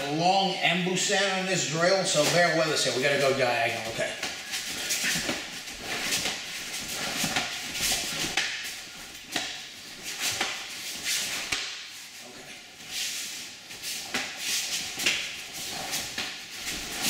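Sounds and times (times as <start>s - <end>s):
uniform fabric swishing: 9.8s - 17.0s.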